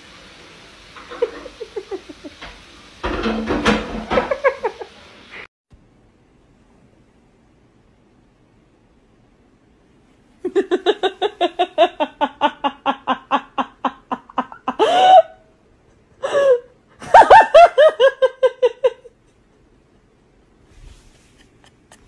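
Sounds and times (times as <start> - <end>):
person laughing hard: 10.4 - 15.4, 16.2 - 19.3.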